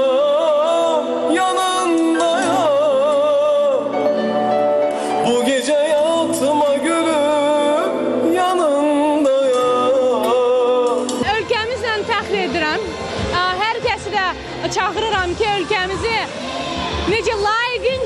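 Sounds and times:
man singing into microphone: 0.0 - 11.5
backing music: 0.0 - 18.0.

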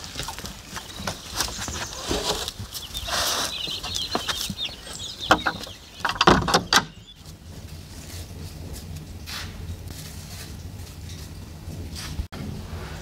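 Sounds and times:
chicken clucking: 0.0 - 8.8
wooden door pushed shut: 6.1 - 6.9.

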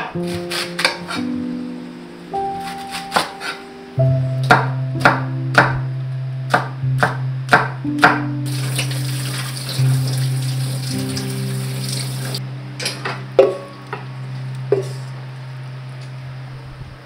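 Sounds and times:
acoustic music: 0.0 - 15.8
knife chopping on wooden board: 0.2 - 1.3, 2.6 - 3.6, 6.5 - 8.2
tap water running into strainer: 8.5 - 12.4.

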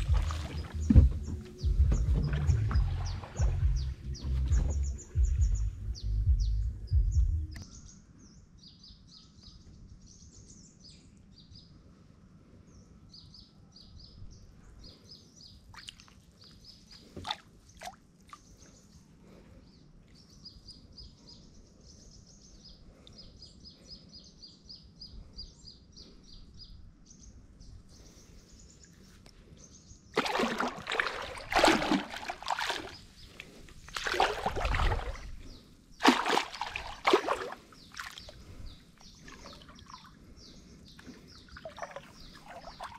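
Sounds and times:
water sloshing and splashing: 0.0 - 4.9, 15.7 - 18.6, 30.2 - 42.9
small birds chirping: 0.0 - 11.9, 12.6 - 42.9.

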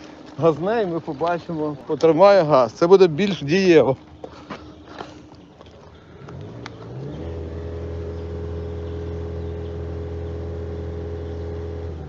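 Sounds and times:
car engine revving at exhaust: 6.2 - 12.0.

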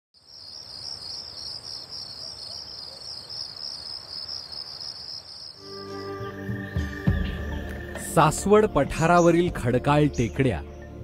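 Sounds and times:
insects trilling: 0.2 - 8.0.

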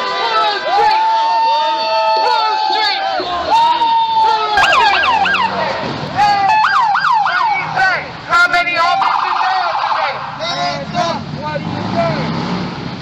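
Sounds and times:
electronic siren yelping: 4.6 - 5.7, 6.5 - 7.6, 8.8 - 10.2.

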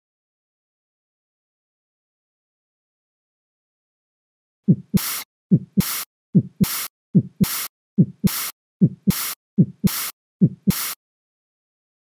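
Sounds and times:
heartbeat: 4.7 - 10.9.

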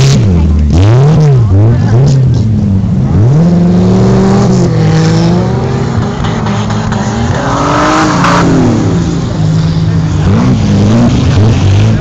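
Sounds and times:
car engines revving: 0.0 - 12.0.

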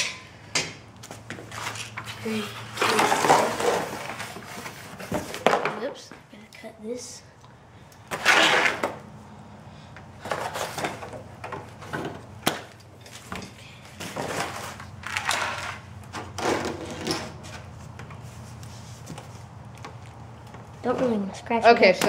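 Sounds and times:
packaging rustling and scraping: 1.4 - 5.6, 10.2 - 11.2, 14.0 - 19.6.

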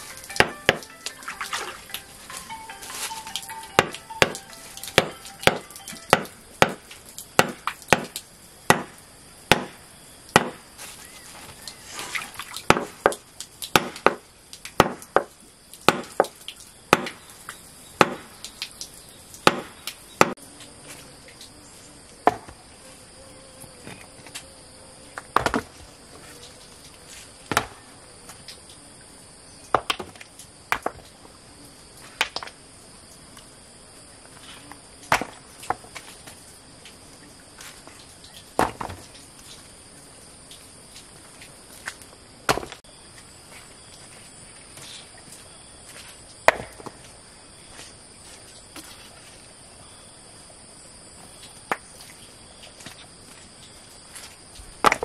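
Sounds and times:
hammer striking on cloth: 5.0 - 6.8, 8.7 - 8.9, 9.5 - 9.8.

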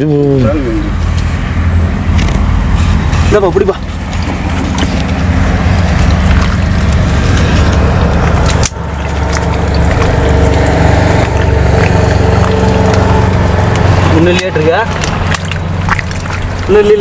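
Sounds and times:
loud engine drone: 0.0 - 17.0.

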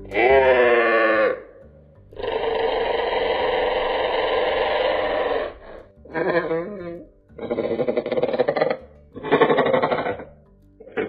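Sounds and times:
dinosaur call: 0.0 - 10.3.

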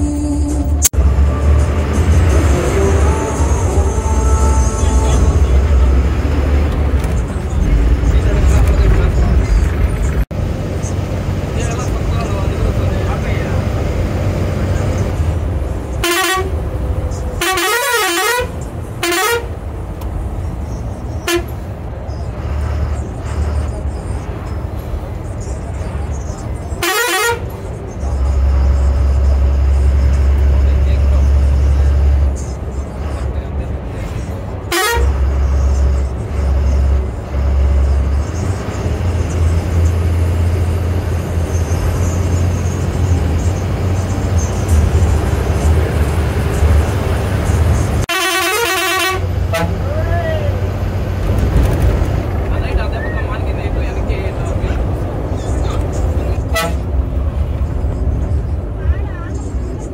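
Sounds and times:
bus engine rumble: 0.0 - 59.9
road noise: 0.0 - 59.9
bus horn blasts: 15.9 - 16.7, 17.3 - 19.6, 21.2 - 21.7, 26.8 - 27.6, 34.6 - 38.1, 48.0 - 50.0, 56.4 - 57.0.

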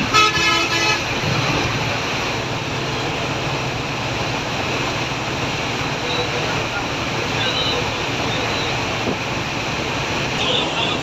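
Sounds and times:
multi-tone vehicle horn blasts: 0.0 - 1.1
bus engine and road noise: 0.0 - 11.0.

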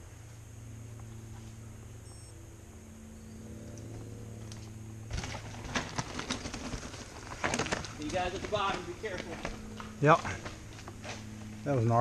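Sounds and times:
low steady hum: 0.0 - 12.0
bike tyres crunching over rocks: 4.6 - 11.6.

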